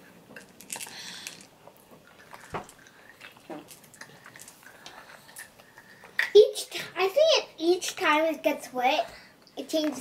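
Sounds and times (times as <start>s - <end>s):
candy balls clicking and rustling: 0.4s - 5.6s.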